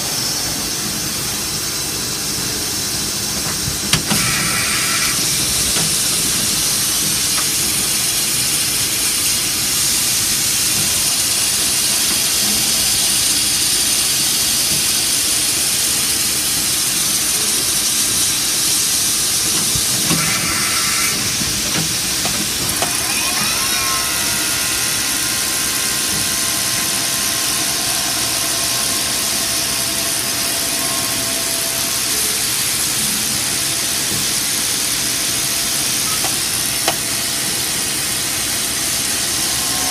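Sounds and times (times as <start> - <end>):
machining center hissing: 0.0 - 39.9
rising whine into high tone: 19.4 - 34.1, 37.4 - 39.9.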